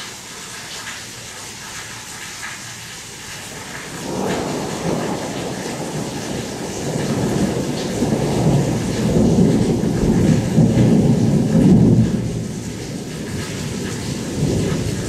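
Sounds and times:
rain hissing: 0:00.0 - 0:15.0
thunder rumbling: 0:03.6 - 0:15.0.

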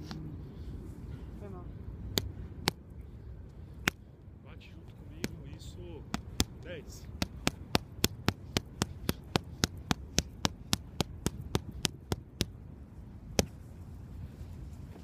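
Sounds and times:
boxing gloves striking focus mitts: 0:06.1 - 0:12.6.

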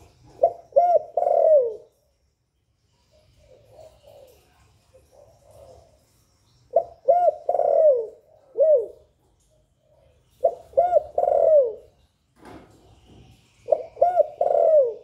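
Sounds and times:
dove cooing: 0:00.2 - 0:01.9, 0:03.1 - 0:06.0, 0:06.7 - 0:09.1, 0:10.0 - 0:11.9, 0:13.7 - 0:15.0.

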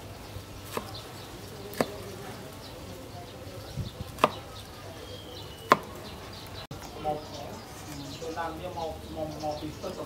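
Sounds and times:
knife chopping on wooden board: 0:00.6 - 0:01.0, 0:01.7 - 0:02.0, 0:04.1 - 0:04.5, 0:05.7 - 0:06.0.

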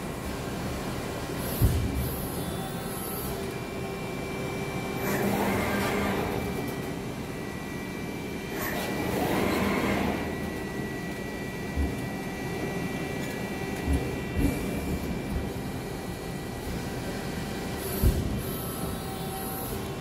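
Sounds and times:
machine motion noise: 0:05.0 - 0:07.0, 0:08.5 - 0:20.0.

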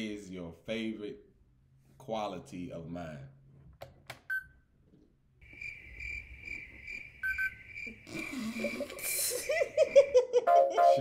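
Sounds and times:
people laughing: 0:08.2 - 0:11.0.

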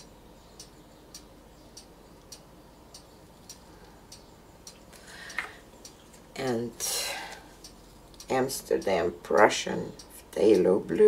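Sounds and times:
faint even ticking: 0:00.0 - 0:10.9.

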